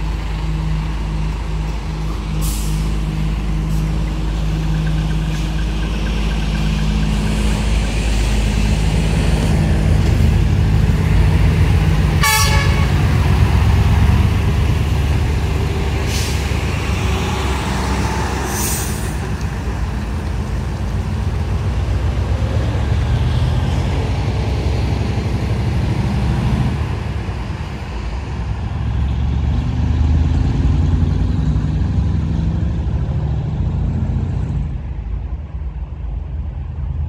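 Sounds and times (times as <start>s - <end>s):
truck diesel engine: 0.0s - 37.0s
air brake hiss: 2.4s - 2.9s, 16.0s - 16.5s, 18.5s - 19.2s.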